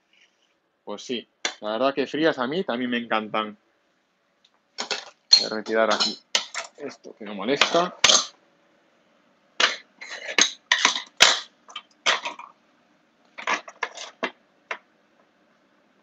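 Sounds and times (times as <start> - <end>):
dishes and utensils clinking: 4.8 - 6.8, 7.6 - 8.3, 9.6 - 12.5.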